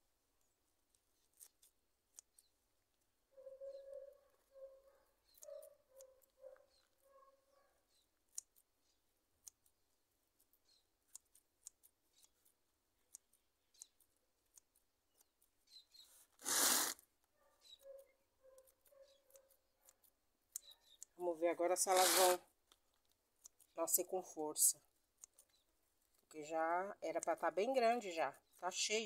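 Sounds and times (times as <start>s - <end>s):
scissors snipping stems: 0.8s - 2.6s, 7.9s - 15.8s, 18.5s - 24.0s, 27.0s - 29.0s.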